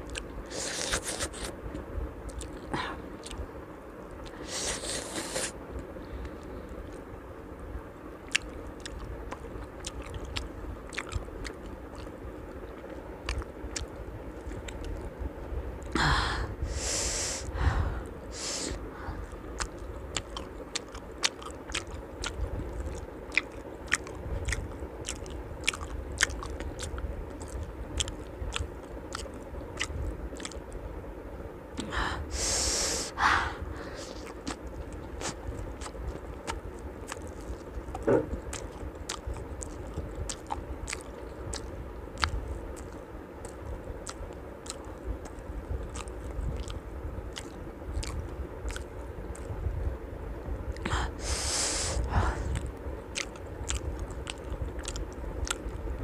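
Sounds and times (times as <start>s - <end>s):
wet chewing clicks: 0.0s - 3.4s, 8.2s - 15.1s, 19.2s - 30.8s, 34.0s - 49.7s, 50.7s - 56.0s
breathy hisses: 16.0s - 19.3s, 31.8s - 34.3s, 50.9s - 52.6s.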